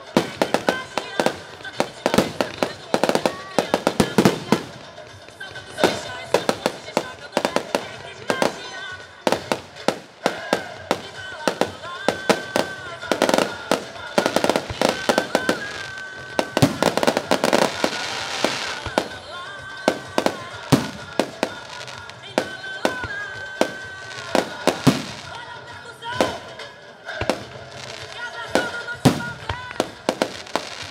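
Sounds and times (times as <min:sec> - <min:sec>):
fireworks bangs: 0:00.0 - 0:30.9
fireworks hissing crackle: 0:00.0 - 0:30.9
music: 0:00.0 - 0:30.9.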